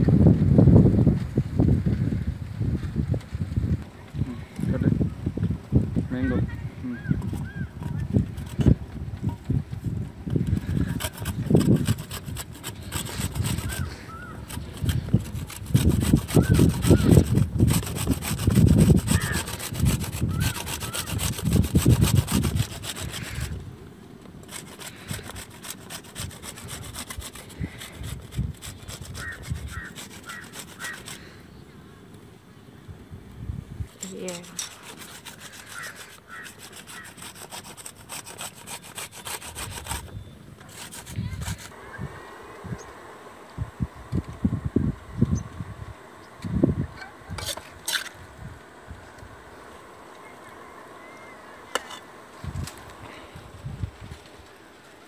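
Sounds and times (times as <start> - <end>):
food grating on grater: 7.2 - 8.8, 10.3 - 23.6, 24.4 - 31.3, 34.0 - 41.8, 47.3 - 48.2, 51.7 - 54.6.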